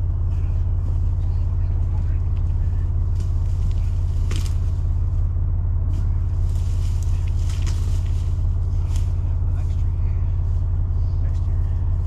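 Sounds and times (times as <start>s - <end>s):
engine idling: 0.0s - 12.0s
leaves rustling: 0.0s - 12.0s
logs knocking on forest floor: 2.0s - 4.8s, 5.9s - 9.4s.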